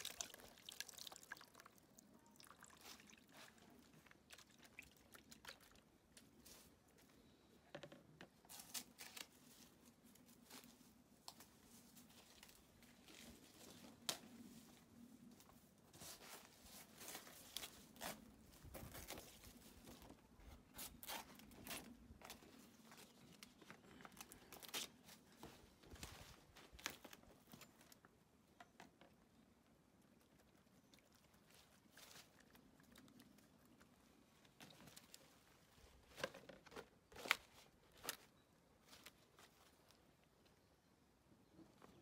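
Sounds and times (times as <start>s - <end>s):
leaves tearing and rustling: 8.5s - 10.8s.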